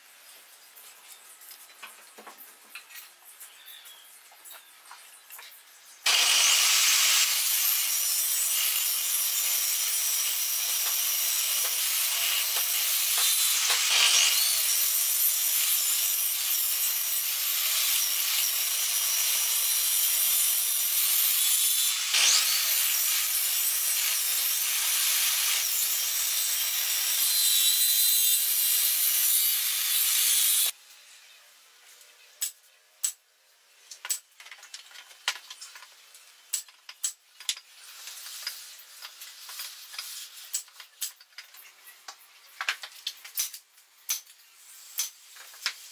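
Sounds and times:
table saw cutting branch: 6.0s - 30.8s.

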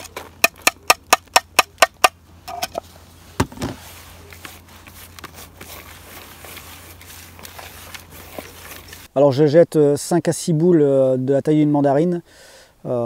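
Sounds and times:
hand rustling dry groundbait: 2.9s - 9.1s.

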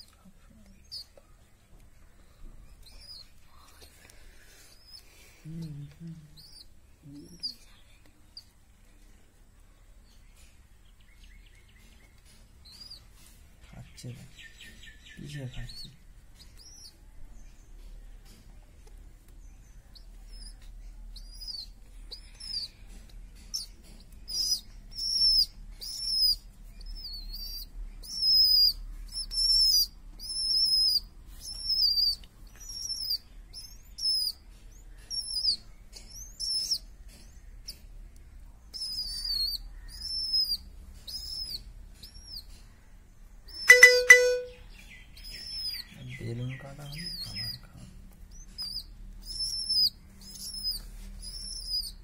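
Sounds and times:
baby pigeon squeaky begging calls: 2.8s - 3.4s, 5.9s - 7.7s, 12.3s - 13.2s, 14.5s - 17.0s, 20.0s - 37.9s, 38.7s - 42.8s, 43.5s - 47.7s, 48.3s - 52.0s.

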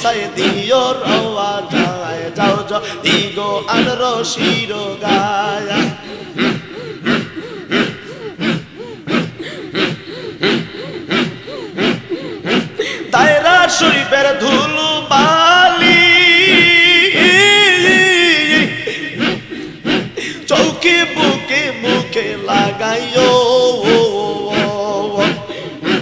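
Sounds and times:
men chanting rhythmically: 0.0s - 26.0s.

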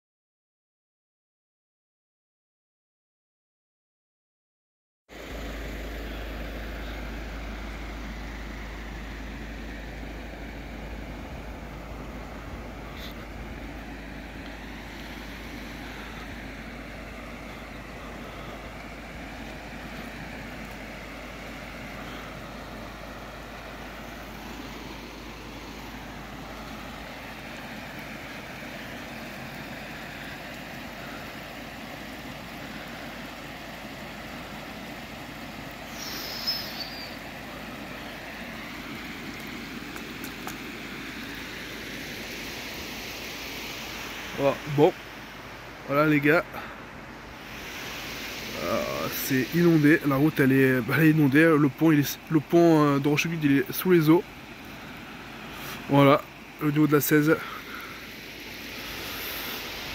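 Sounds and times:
floodwater rushing: 5.2s - 59.9s
high chirp: 36.0s - 37.2s.

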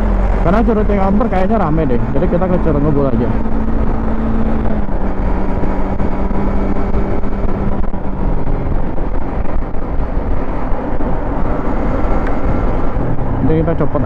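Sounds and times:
motorcycle engine running: 0.0s - 14.0s
wind noise on microphone: 3.2s - 14.0s.

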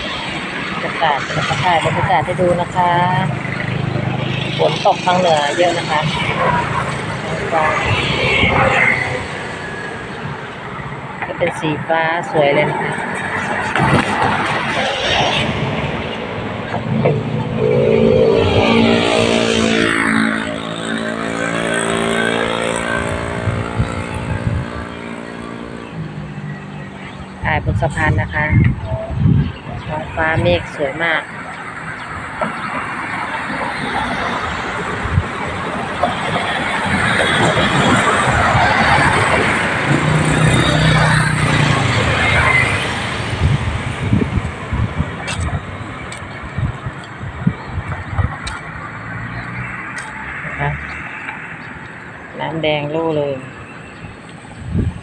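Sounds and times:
vehicle engine passing by: 16.8s - 25.7s.

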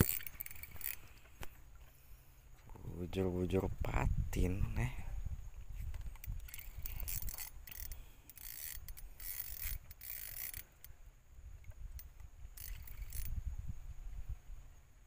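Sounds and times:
fishing reel ratcheting and buzzing: 0.0s - 1.4s, 5.9s - 10.9s, 11.9s - 13.4s.

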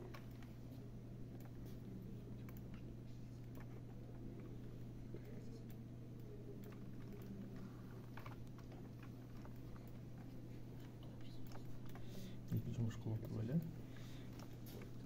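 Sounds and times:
steady low hum: 0.0s - 15.0s
keyboard and mouse clicks: 2.4s - 4.0s, 5.2s - 12.0s.

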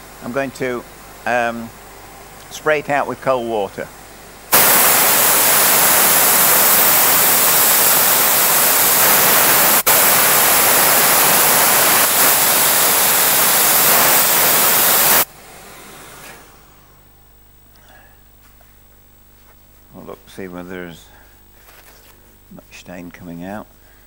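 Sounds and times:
spotting gun spraying water hiss: 4.5s - 15.3s.

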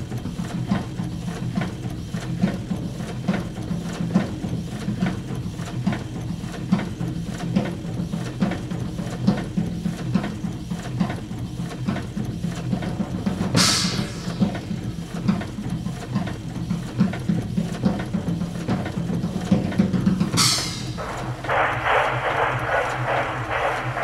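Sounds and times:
mechanical clatter beat: 6.7s - 24.0s
low hum: 20.8s - 24.0s.

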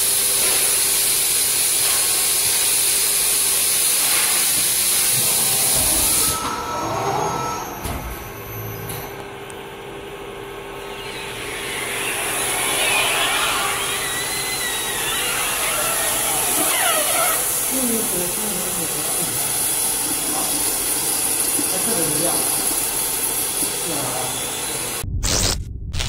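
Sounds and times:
steady machine hum: 4.7s - 25.2s.

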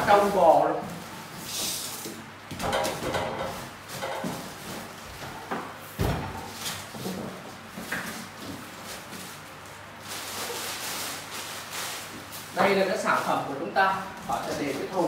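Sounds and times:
plastic wrapping rustling: 0.0s - 2.2s, 6.4s - 15.0s
heavy knocks and thumps: 5.2s - 7.4s.

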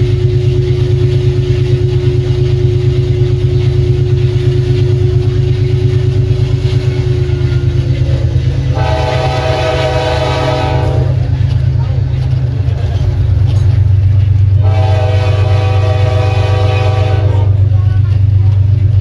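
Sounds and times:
locomotive engine rumble: 0.0s - 19.0s
train air horn chord: 8.7s - 11.2s, 14.6s - 17.7s.

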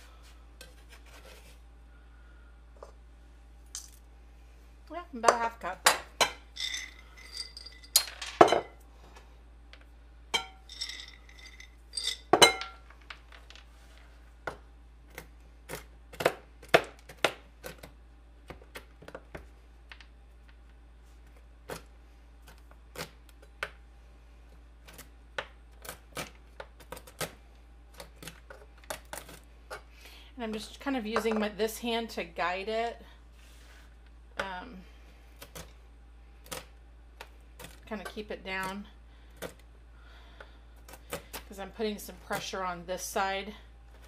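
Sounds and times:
glass jar clinks: 6.5s - 8.7s, 10.4s - 12.8s
almonds clattering onto plastic board: 6.6s - 8.6s.

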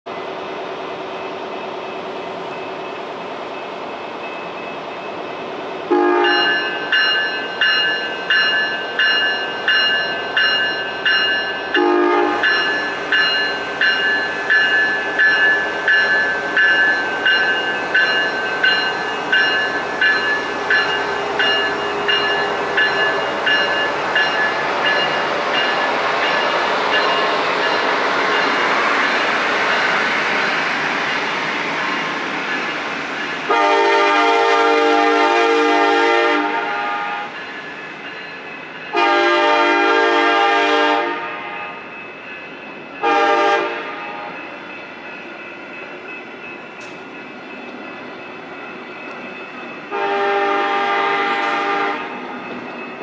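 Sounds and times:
locomotive bell ringing: 1.1s - 53.0s
train horn toots: 5.9s - 6.7s, 11.8s - 12.5s, 33.5s - 37.4s, 38.9s - 41.6s, 43.0s - 44.2s, 49.9s - 52.2s
diesel locomotive idling: 5.9s - 35.8s.

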